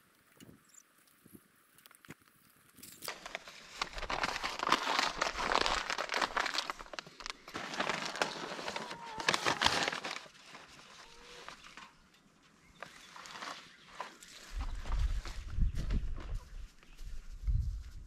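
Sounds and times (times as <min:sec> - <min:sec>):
paper bag crinkling: 0:02.8 - 0:11.9.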